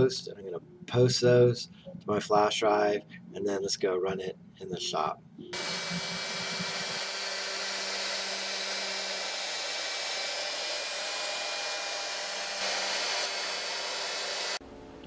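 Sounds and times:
cnc router cutting wood: 5.6s - 14.6s
dust extraction hiss: 5.6s - 14.6s.

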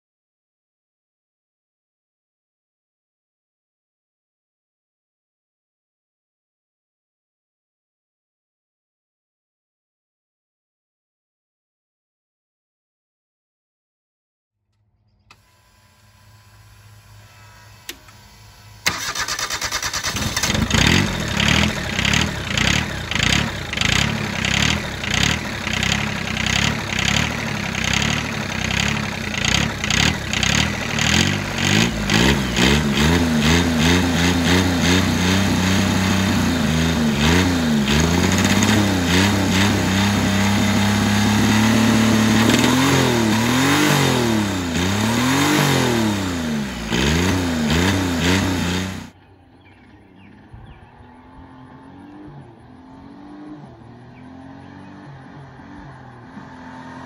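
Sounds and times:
diesel engine cranking and revving: 15.3s - 57.0s.

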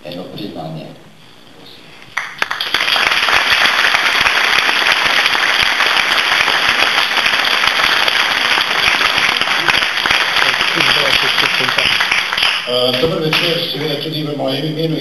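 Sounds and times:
audience applauding: 2.2s - 14.0s.

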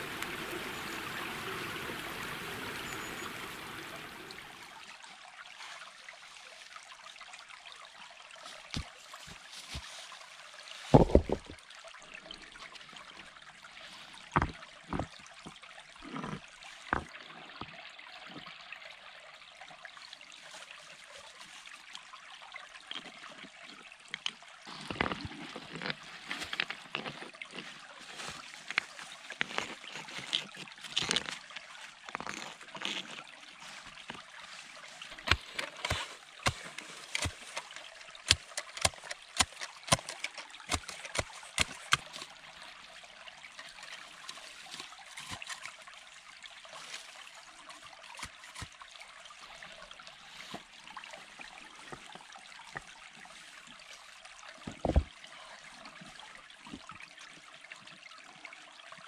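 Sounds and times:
running water: 0.0s - 59.0s
clicks and knocks of stones: 10.8s - 11.6s, 14.3s - 17.2s, 24.1s - 42.4s, 43.8s - 45.8s, 54.6s - 55.2s.

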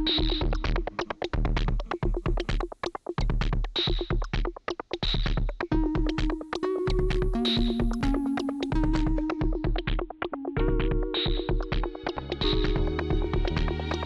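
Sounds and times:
electronic music with fast beat: 0.0s - 14.0s.

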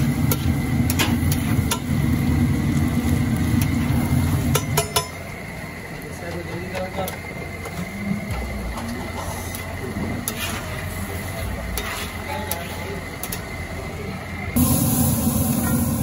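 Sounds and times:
vegetables sizzling on griddle: 0.0s - 16.0s
metal spatula scraping griddle: 9.2s - 13.5s.

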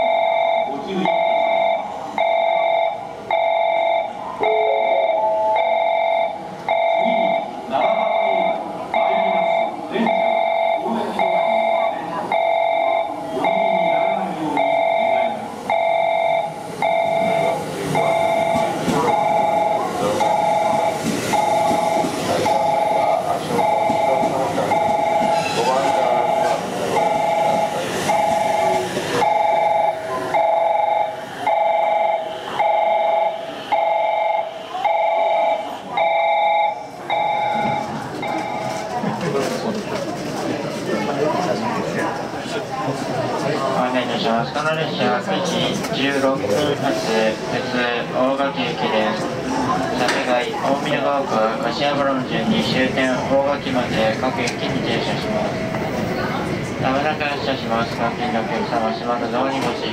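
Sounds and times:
platform warning tone: 0.0s - 38.9s
electric train arriving: 0.0s - 59.9s
electric train rumble: 13.7s - 39.4s.

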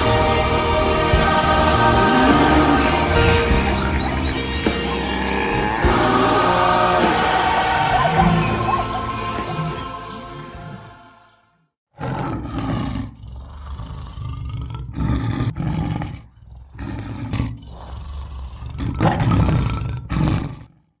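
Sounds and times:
choir music: 0.0s - 11.7s
lion roaring: 0.6s - 11.0s, 12.0s - 20.9s.

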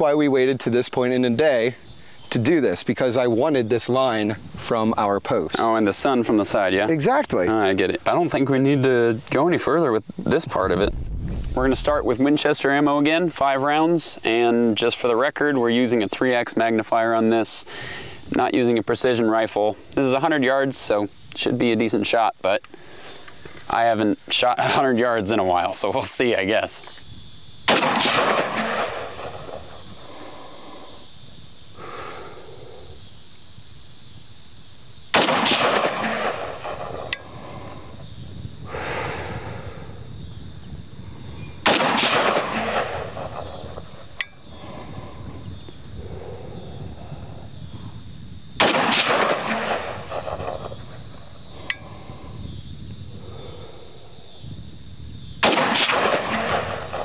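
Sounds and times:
rifle shots with echo: 27.7s - 29.8s, 35.1s - 37.1s, 41.6s - 43.7s, 48.6s - 50.8s, 55.4s - 57.0s.

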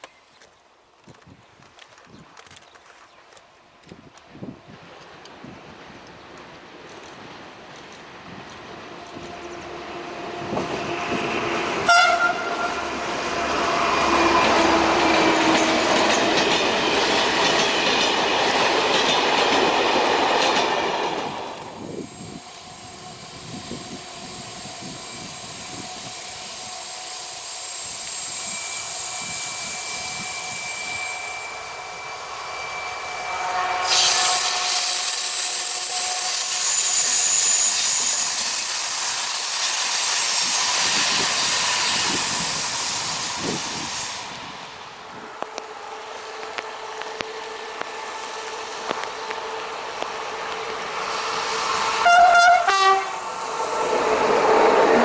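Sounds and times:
diesel locomotive engine noise: 3.7s - 55.0s
train horn blast: 8.9s - 16.1s, 29.2s - 36.7s, 45.4s - 55.0s.

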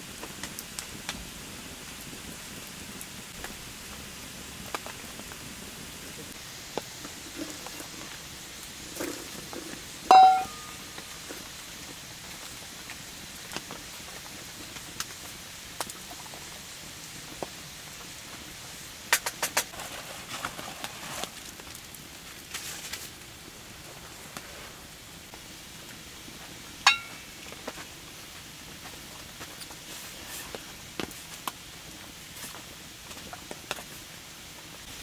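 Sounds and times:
light rain pattering: 0.0s - 35.0s
short pitched tone: 10.1s - 10.8s.

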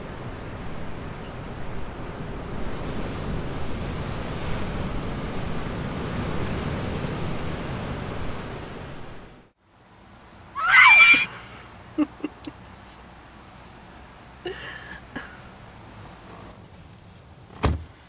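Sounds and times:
high-pitched scream: 10.6s - 11.4s.

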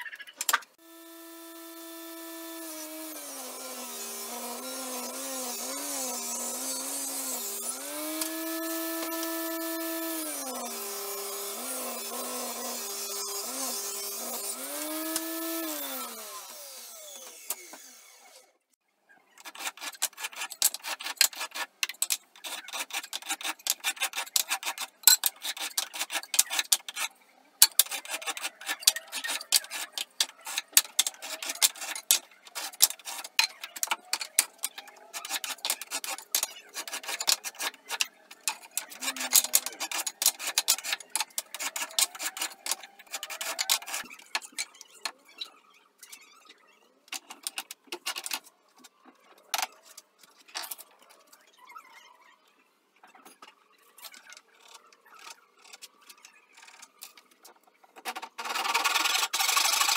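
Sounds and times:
wood rubbed on abrasive surface: 38.7s - 44.1s.

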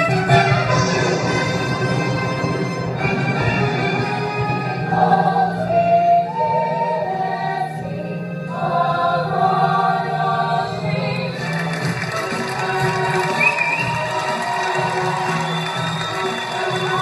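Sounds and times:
ensemble singing in chorus: 0.2s - 17.0s
audience cheering: 11.4s - 17.0s.

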